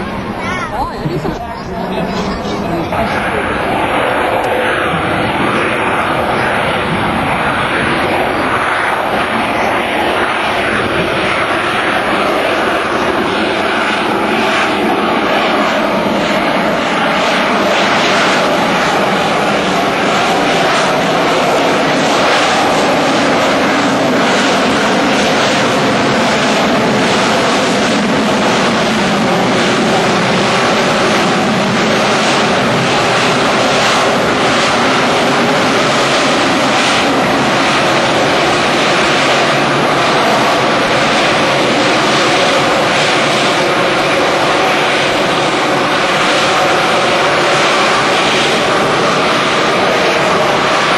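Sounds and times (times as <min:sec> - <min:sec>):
jet engine running loud: 0:00.0 - 0:50.9.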